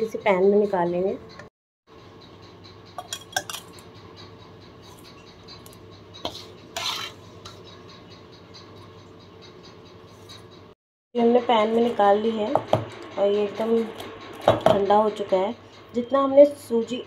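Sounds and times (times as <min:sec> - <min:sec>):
spatula scraping cookware: 0:04.8 - 0:08.0.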